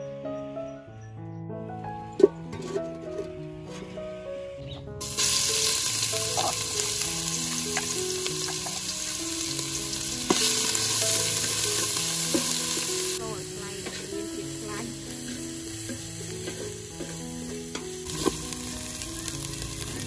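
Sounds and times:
background music with melody: 0.0s - 20.0s
food sizzling in hot oil: 5.0s - 20.0s.

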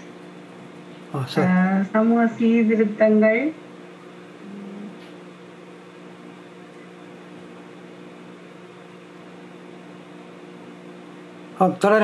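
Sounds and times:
steady background hum: 0.0s - 12.0s.

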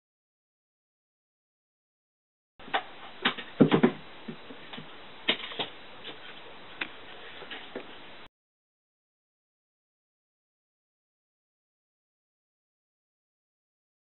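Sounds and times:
knocks on wooden floor: 3.2s - 4.0s.

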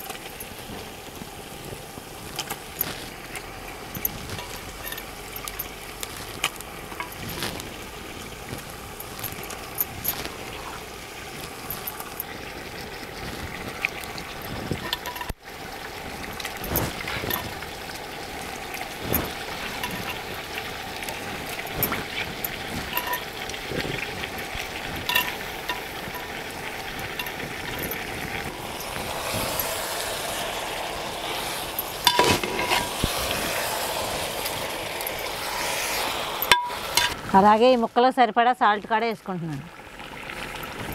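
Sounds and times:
chicken sizzling in oil: 0.0s - 38.2s, 38.9s - 40.9s
spoon clinking on pot: 22.8s - 23.3s, 25.0s - 26.4s, 32.0s - 32.9s.

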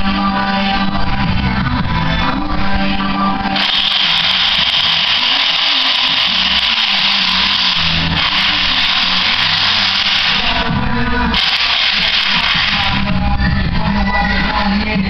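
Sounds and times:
power tool whirring: 3.6s - 13.2s.

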